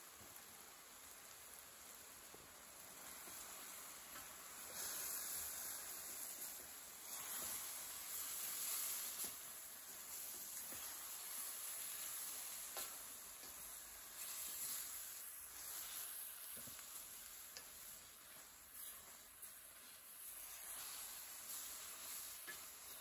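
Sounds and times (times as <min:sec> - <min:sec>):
food sizzling in a pan: 0:00.0 - 0:23.0
spoon scraping and tapping pan: 0:10.2 - 0:11.8, 0:12.6 - 0:14.9, 0:15.6 - 0:19.6, 0:20.4 - 0:23.0.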